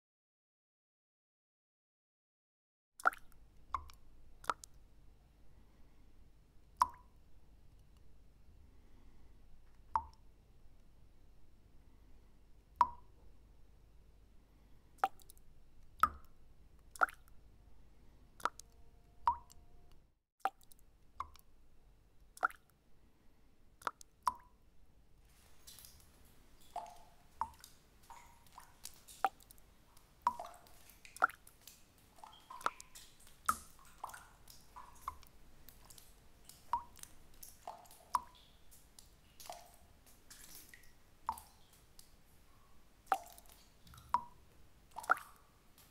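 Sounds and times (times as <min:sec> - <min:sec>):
water drops plinking: 0:12.8 - 0:13.1
faint steady hiss: 0:24.9 - 0:45.9.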